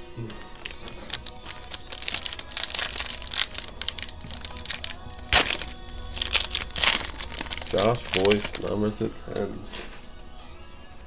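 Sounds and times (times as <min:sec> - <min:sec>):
foil wrapper crinkling: 0:00.2 - 0:09.0.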